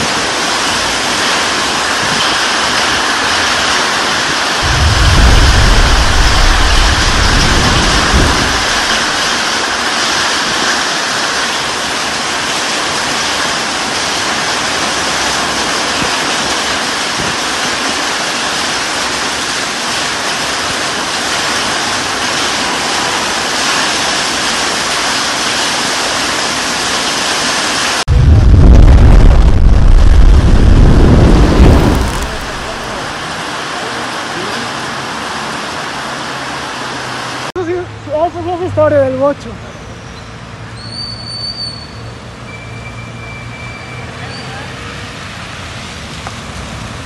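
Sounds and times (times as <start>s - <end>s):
heavy rain pouring: 0.0s - 39.4s, 44.2s - 47.0s
loud low rumble: 4.6s - 9.7s, 28.1s - 33.4s.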